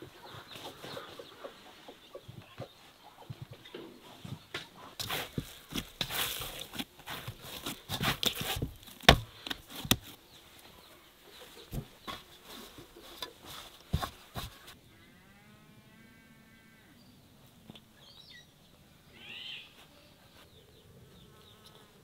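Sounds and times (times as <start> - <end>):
animal bleat: 14.9 - 17.0.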